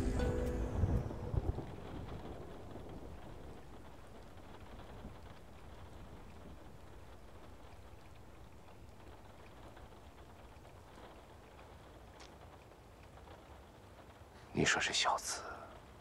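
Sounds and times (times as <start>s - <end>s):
faint steady hiss: 0.0s - 16.0s
light ticks: 3.8s - 14.3s.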